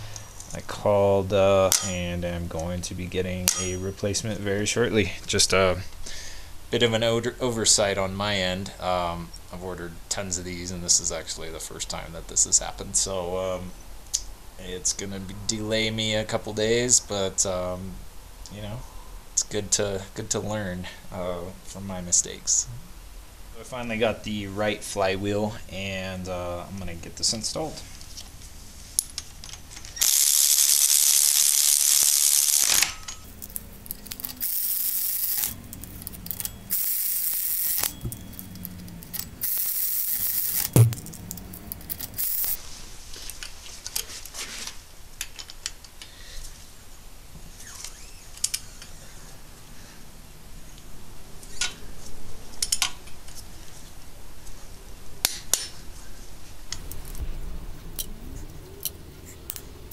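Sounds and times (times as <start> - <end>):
cordless power tool spinning bolts: 29.9 - 42.6
torque wrench ratchet ticks: 30.0 - 40.8, 41.8 - 42.6
metallic clinks: 33.0 - 42.6
sharp knock: 40.7 - 41.1.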